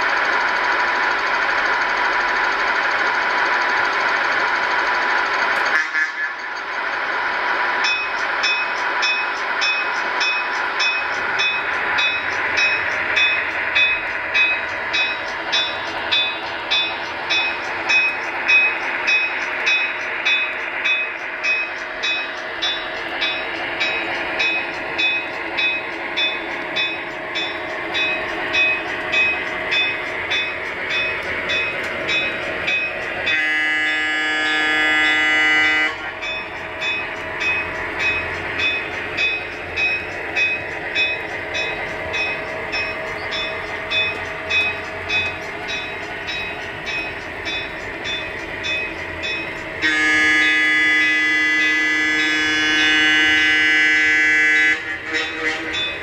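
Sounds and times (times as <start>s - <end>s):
model train running with clicking: 0.0s - 56.0s
train horn blast: 5.7s - 6.5s, 33.3s - 36.1s, 49.8s - 55.9s.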